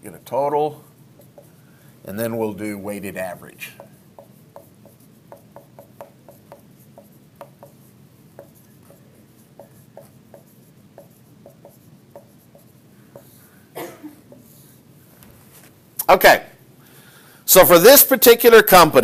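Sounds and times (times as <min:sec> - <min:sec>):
marker writing on whiteboard: 0:00.1 - 0:13.5, 0:14.3 - 0:15.4.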